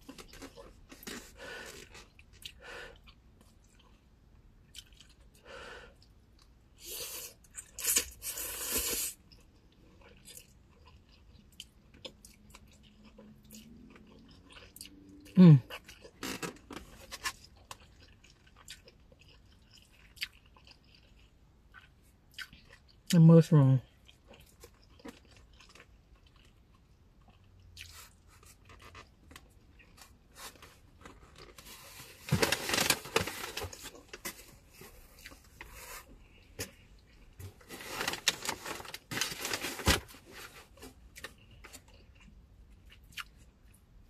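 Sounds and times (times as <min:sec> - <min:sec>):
person chewing food: 0:00.0 - 0:23.1, 0:23.9 - 0:39.1, 0:40.8 - 0:43.9
crunchy chewing: 0:24.0 - 0:30.2.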